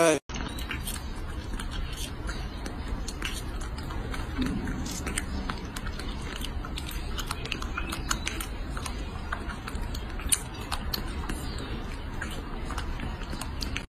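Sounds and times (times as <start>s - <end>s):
steady low hum: 0.0s - 13.9s
monkey chewing wet smacking: 0.3s - 13.9s.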